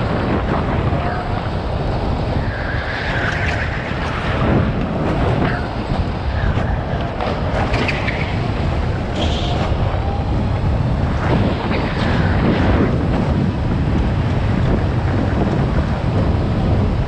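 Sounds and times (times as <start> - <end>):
rush of wind noise: 0.0 - 17.0.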